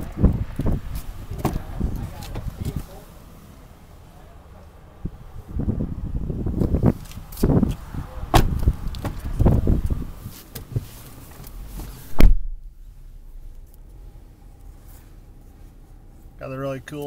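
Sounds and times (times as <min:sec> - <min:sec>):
car door shutting: 0:00.6 - 0:03.0, 0:06.6 - 0:12.7.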